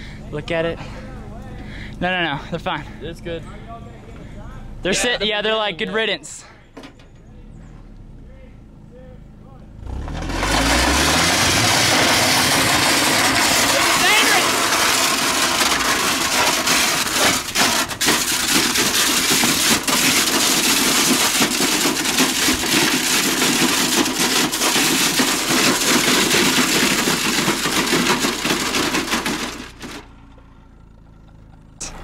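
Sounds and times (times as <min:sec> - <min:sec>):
metal scraping over gravel: 0:09.8 - 0:32.0.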